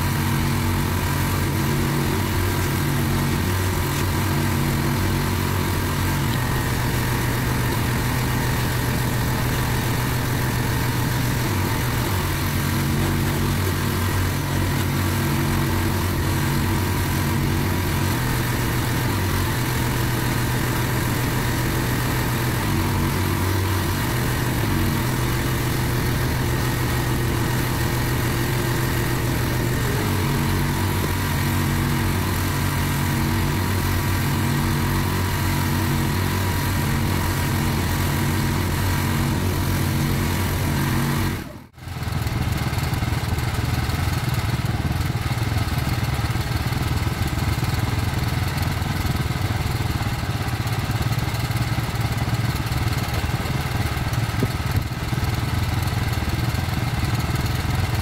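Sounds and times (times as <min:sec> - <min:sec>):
water jet spraying on paving: 0:00.0 - 0:41.5
pressure washer engine running: 0:00.0 - 0:58.0.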